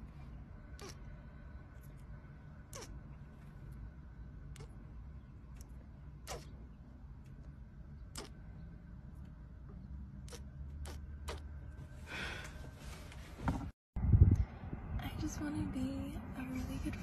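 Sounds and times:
low steady rumble: 0.0 - 17.0
kissing lip smacks: 2.7 - 2.9, 5.6 - 6.5, 8.1 - 8.4.

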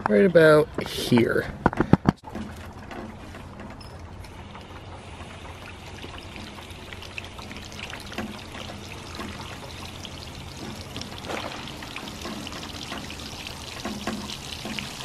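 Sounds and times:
water pouring onto pavement: 5.0 - 15.0.

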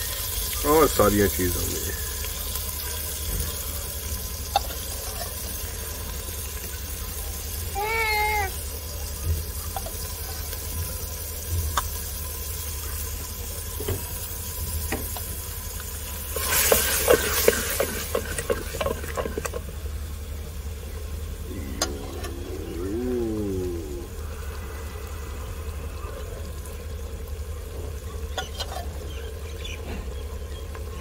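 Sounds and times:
food sizzling: 0.0 - 31.0
cooking clicks and scrapes: 1.9 - 7.6, 8.6 - 20.1, 27.0 - 29.5.

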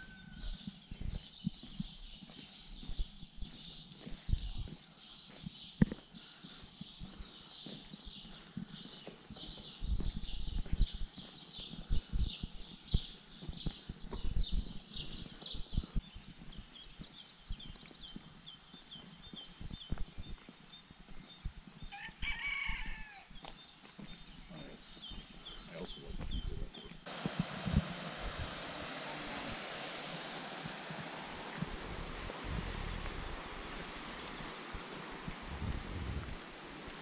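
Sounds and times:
rooster crowing: 0.0 - 0.6, 21.9 - 23.3
walking footsteps: 0.0 - 28.0, 30.6 - 37.0
small birds chirping: 0.0 - 35.5.

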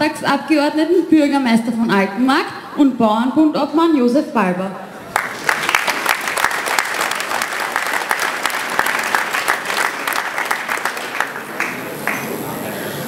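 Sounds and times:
audience applauding: 5.1 - 12.7.

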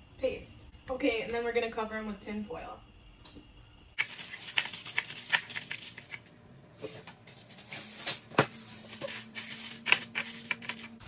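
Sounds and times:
aluminium foil crinkling: 4.0 - 6.2, 7.3 - 11.0.

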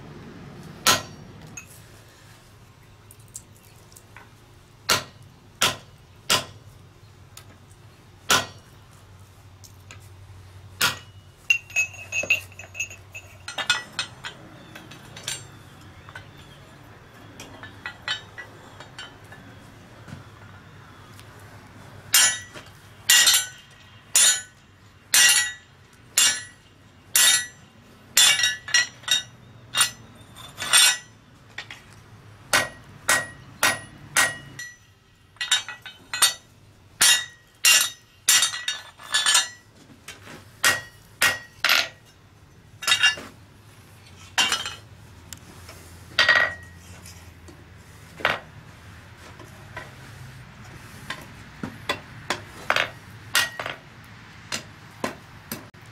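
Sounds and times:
hammer striking hot steel on anvil: 0.8 - 1.7, 4.9 - 6.6, 8.3 - 8.6, 10.8 - 11.9, 22.1 - 27.6, 28.2 - 31.2, 32.5 - 39.6, 40.6 - 42.1, 53.3 - 53.8.

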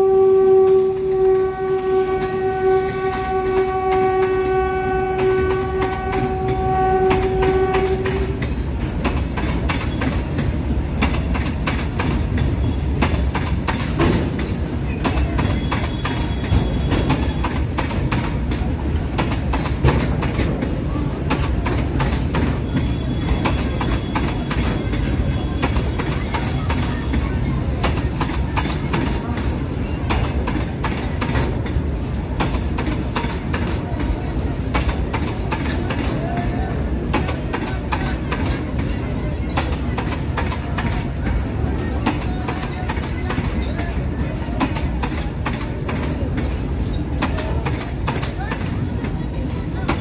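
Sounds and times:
train horn chord: 0.0 - 8.4
low train rumble: 0.0 - 50.0
train wheels clattering over rail joints: 0.1 - 50.0.

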